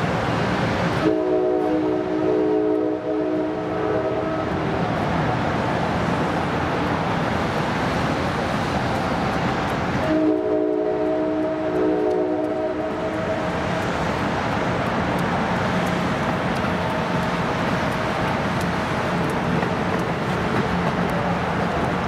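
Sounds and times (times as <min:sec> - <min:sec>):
train cars rumbling on track: 0:00.0 - 0:22.0
train horn chord: 0:01.0 - 0:04.4, 0:10.0 - 0:13.4
faint track clicks: 0:08.8 - 0:10.1, 0:10.9 - 0:22.0.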